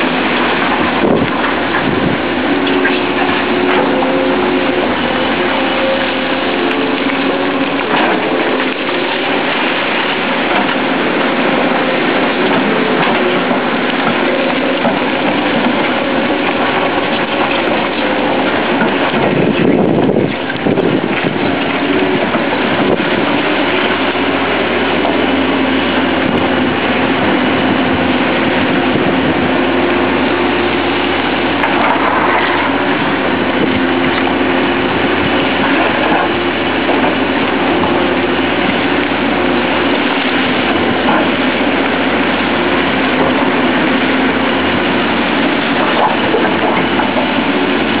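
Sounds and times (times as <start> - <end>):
excavator diesel engine running: 0.0 - 48.0.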